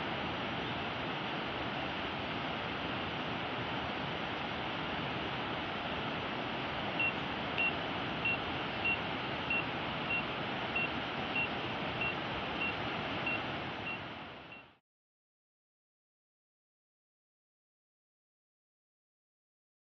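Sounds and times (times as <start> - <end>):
short high warning beeps: 7.0 - 14.7.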